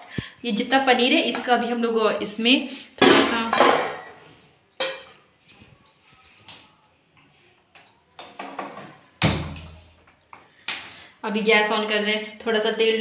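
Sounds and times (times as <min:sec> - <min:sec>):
steel utensils knocking and clinking: 0:00.7 - 0:01.8, 0:03.0 - 0:05.3.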